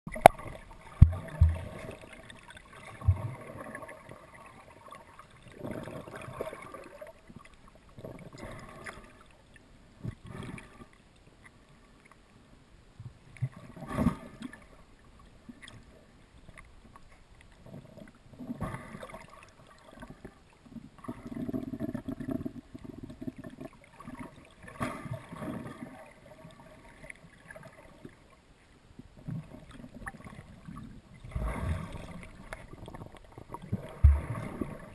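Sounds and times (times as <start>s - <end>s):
camera bumps underwater: 0.1s - 1.9s
muffled underwater sloshing: 0.1s - 12.3s, 13.1s - 34.9s.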